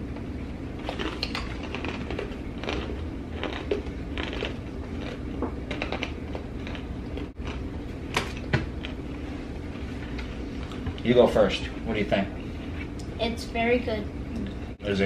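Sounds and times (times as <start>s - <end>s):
steady low hum: 0.0s - 15.0s
people chewing crunchy pretzels: 0.8s - 7.8s.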